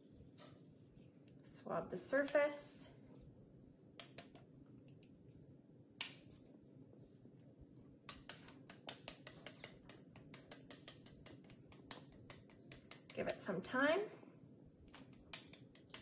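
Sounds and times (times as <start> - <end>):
plastic swab clicking: 4.0 - 5.1, 8.1 - 13.2, 14.9 - 16.0.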